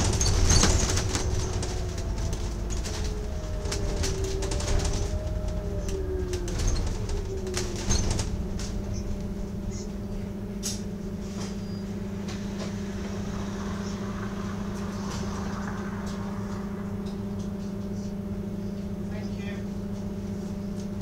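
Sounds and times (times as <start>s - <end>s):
clicks and rattles in bus: 0.0s - 12.8s
falling whine: 0.0s - 19.3s
bus engine drone: 0.0s - 21.0s.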